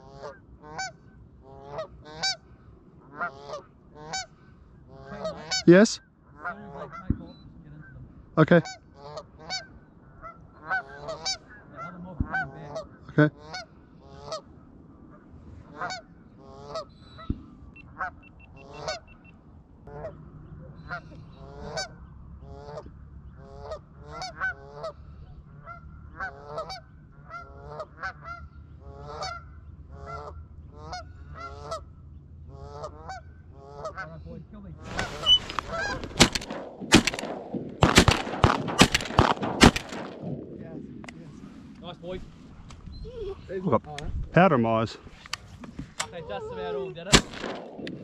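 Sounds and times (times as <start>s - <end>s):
geese honking: 0.0s - 2.4s, 3.0s - 5.7s, 6.3s - 7.1s, 8.6s - 17.3s, 17.9s - 19.2s, 19.8s - 40.2s
shotgun fire: 34.9s - 40.8s, 47.1s - 48.0s.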